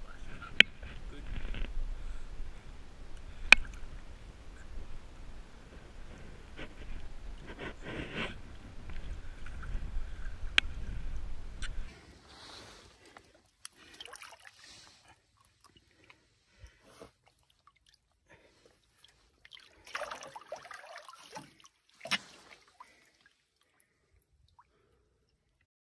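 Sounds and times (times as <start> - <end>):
river water splashing: 11.9 - 16.0, 18.9 - 24.0.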